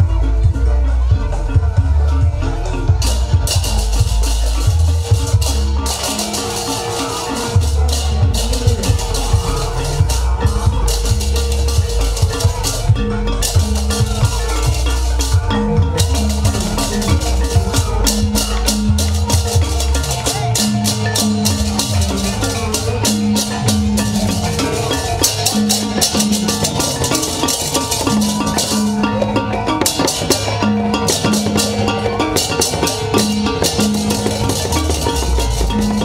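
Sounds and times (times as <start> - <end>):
deep bass line: 0.0 - 6.5, 7.3 - 29.9, 33.1 - 36.0
drums beating fast rhythm: 0.0 - 36.0.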